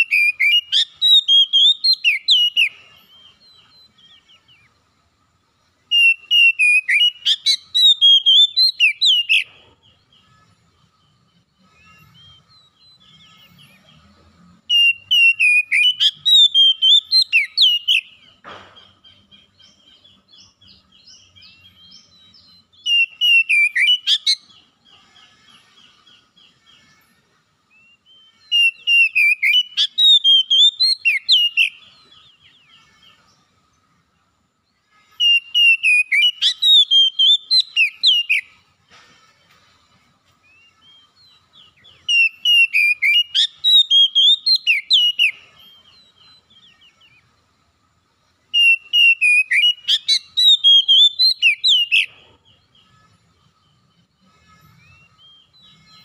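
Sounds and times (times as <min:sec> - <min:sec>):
bird whistling and chirping: 0:00.0 - 0:04.8, 0:05.9 - 0:10.3, 0:11.0 - 0:14.0, 0:14.7 - 0:24.7, 0:27.7 - 0:33.3, 0:35.2 - 0:38.7, 0:40.4 - 0:47.4, 0:48.5 - 0:52.9, 0:54.6 - 0:56.0.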